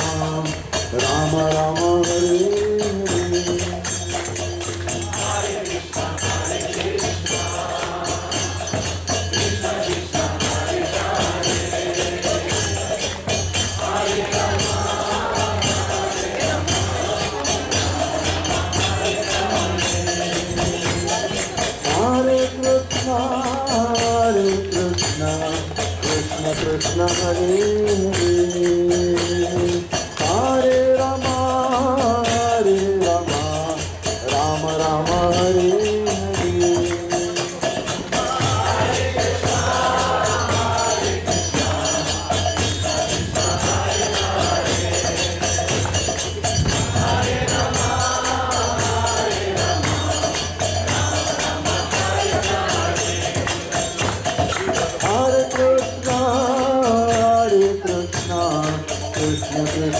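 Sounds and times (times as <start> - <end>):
group singing response: 0.0 - 58.8
jingling percussion rhythm: 0.0 - 59.9
lead voice singing: 0.0 - 59.9.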